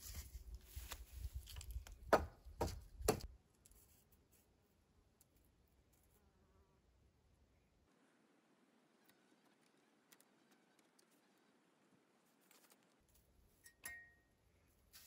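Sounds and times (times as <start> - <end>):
rustling handling noise: 0.0 - 2.0.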